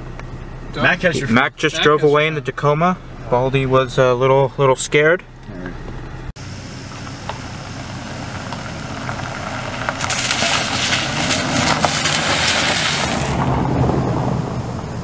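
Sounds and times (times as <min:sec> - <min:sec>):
vehicle engine running low: 0:00.0 - 0:15.0
tyres crunching over gravel: 0:05.4 - 0:13.6.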